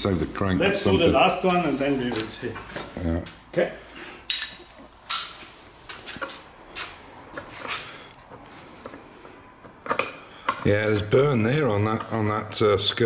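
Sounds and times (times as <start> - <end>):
metal parts knocking and clinking: 4.3 - 5.3.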